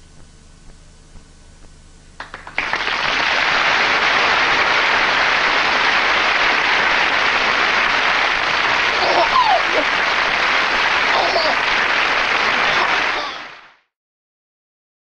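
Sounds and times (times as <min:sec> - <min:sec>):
audience applause: 0:02.2 - 0:13.9.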